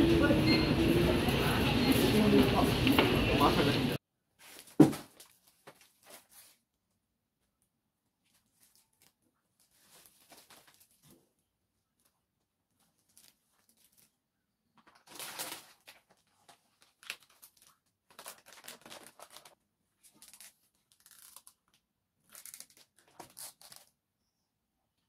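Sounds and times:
packaging crinkling: 14.8s - 23.9s.

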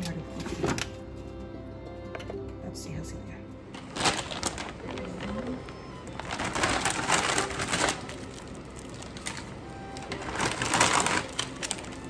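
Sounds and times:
quiet background music: 0.0s - 12.0s
plastic packet crinkling: 3.8s - 12.0s.

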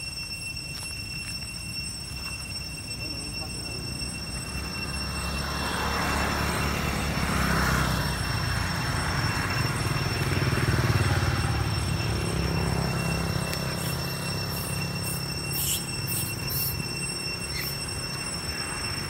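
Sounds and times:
vehicle passing on road: 3.8s - 19.0s.

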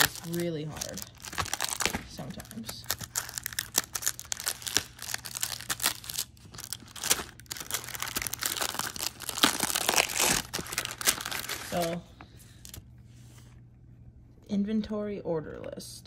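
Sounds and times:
plastic wrap crinkling and tearing: 0.0s - 12.0s.

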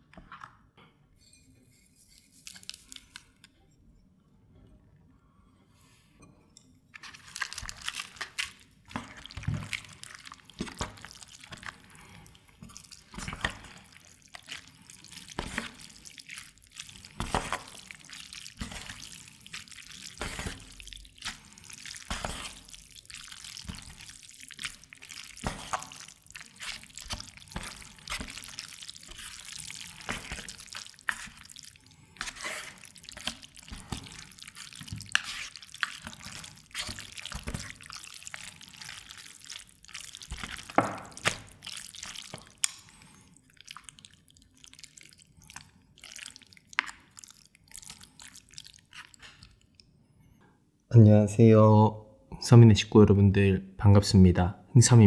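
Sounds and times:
chopsticks mixing sticky noodles: 1.7s - 3.4s, 7.0s - 49.8s
chopsticks clicking and scraping: 7.0s - 43.0s.

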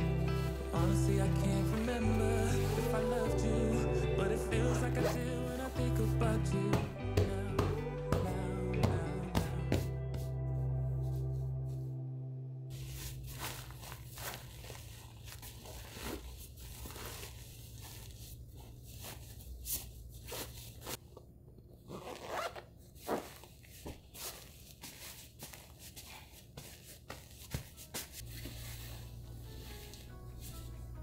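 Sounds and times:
fabric rustling: 0.0s - 3.3s, 12.7s - 21.1s, 21.9s - 31.0s.

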